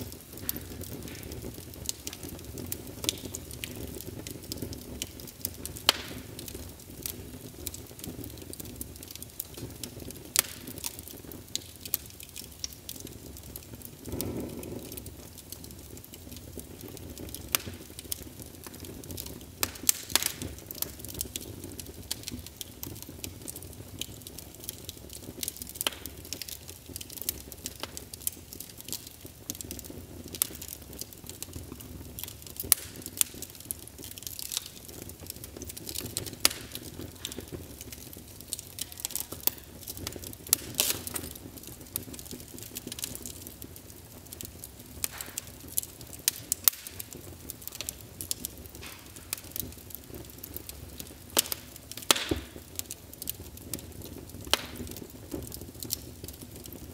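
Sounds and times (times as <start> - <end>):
low steady background noise: 0.0 - 56.9
wood fire crackling: 0.0 - 56.9.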